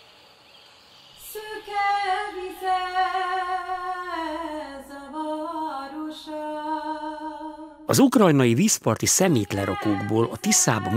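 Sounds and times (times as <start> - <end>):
woman singing wordless notes: 1.2 - 7.9, 9.3 - 10.9.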